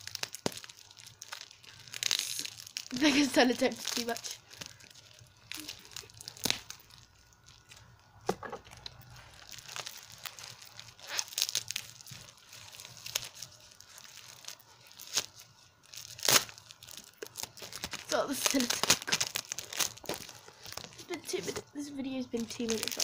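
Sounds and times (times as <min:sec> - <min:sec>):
wrapping paper tearing and crinkling: 0:00.0 - 0:23.0.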